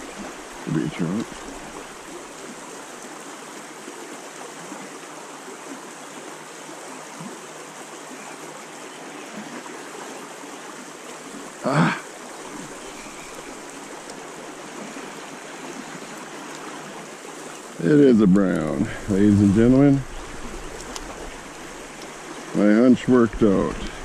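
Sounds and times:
creek water flowing: 0:00.0 - 0:24.0
person's voiced sound: 0:11.6 - 0:12.1, 0:17.8 - 0:20.0.

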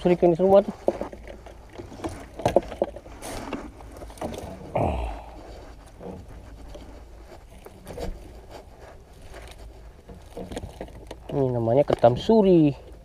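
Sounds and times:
net mesh rustling and scraping: 0:00.6 - 0:11.4.

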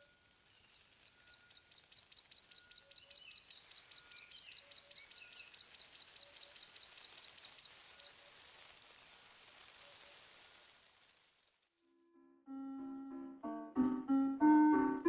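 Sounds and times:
steady hiss: 0:00.0 - 0:11.7
faint repeating notes: 0:12.0 - 0:15.0.

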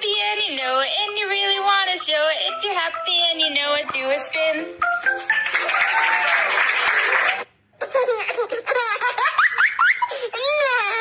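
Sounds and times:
rattling backing music: 0:00.0 - 0:06.2.

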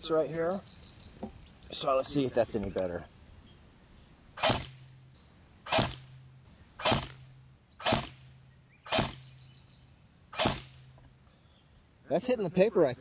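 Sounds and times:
electric bb rifle shots: 0:04.4 - 0:04.9, 0:05.6 - 0:06.2, 0:06.8 - 0:09.4, 0:10.3 - 0:10.9.

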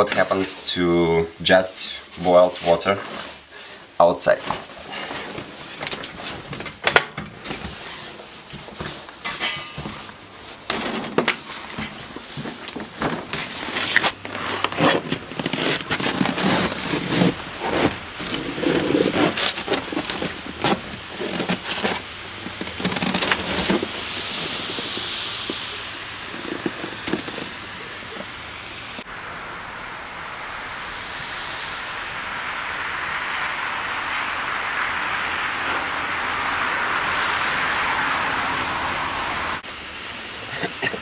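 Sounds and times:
boiling water flung hissing: 0:00.0 - 0:06.6, 0:07.3 - 0:41.0
coat rustling and mic handling: 0:04.3 - 0:25.7.

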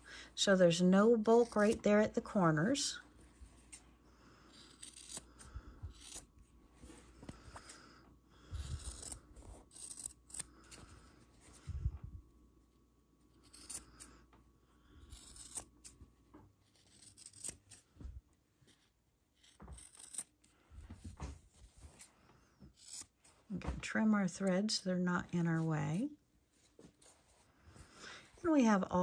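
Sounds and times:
fabric scissors snipping: 0:04.5 - 0:06.2, 0:16.6 - 0:17.8.

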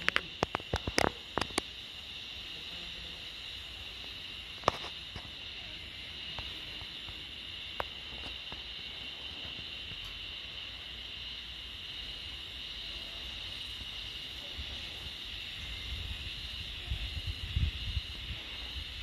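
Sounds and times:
sharp clicks: 0:00.0 - 0:01.7
high-pitched insect chorus: 0:00.0 - 0:19.0.

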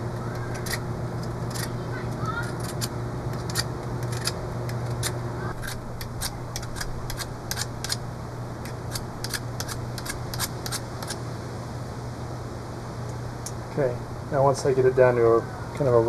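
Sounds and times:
steady low hum: 0:00.0 - 0:16.0
knife shaving wood: 0:00.1 - 0:08.0, 0:08.6 - 0:11.2.

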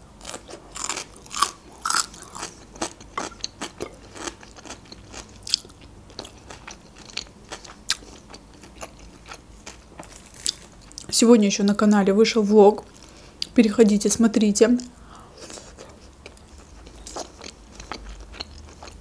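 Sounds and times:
crunchy chewing of cucumber: 0:00.2 - 0:11.1, 0:15.4 - 0:19.0.

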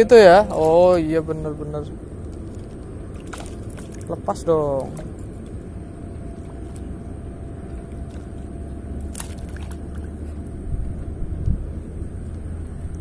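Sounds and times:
steady low rumble: 0:00.0 - 0:13.0
fish splashing at water surface: 0:02.3 - 0:04.2, 0:09.0 - 0:10.4.

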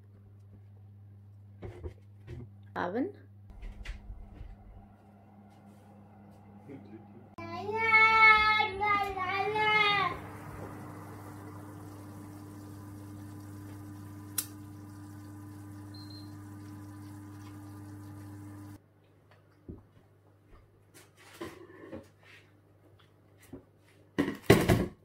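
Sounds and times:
oven fan humming: 0:03.5 - 0:18.8
small sounds: 0:03.5 - 0:20.0.

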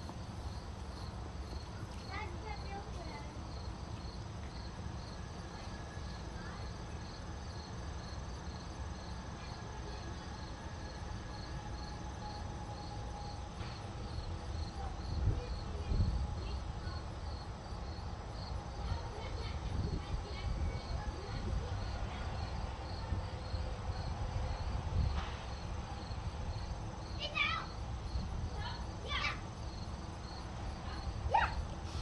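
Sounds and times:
insects chirping: 0:00.0 - 0:32.0.

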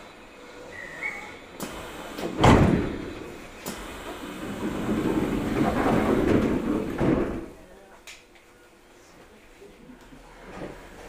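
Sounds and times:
heavy thud: 0:02.3 - 0:03.2.

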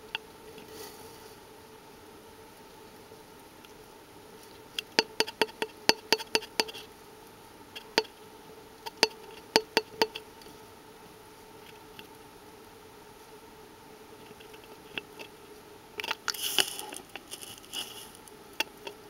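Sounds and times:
faint steady tube hum: 0:00.0 - 0:19.0.

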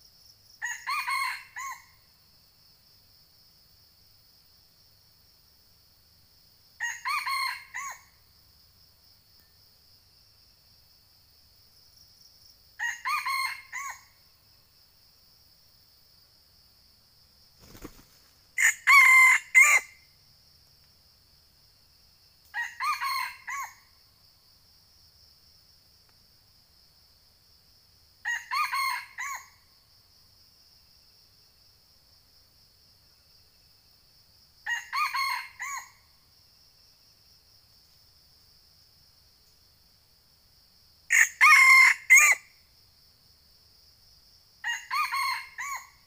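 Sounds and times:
high insect drone: 0:00.0 - 0:46.0
rooster crowing: 0:00.6 - 0:01.9, 0:06.8 - 0:08.0, 0:12.8 - 0:14.0, 0:18.6 - 0:20.0, 0:22.6 - 0:23.8, 0:28.3 - 0:29.5, 0:34.7 - 0:35.9, 0:41.1 - 0:42.5, 0:44.6 - 0:45.9.

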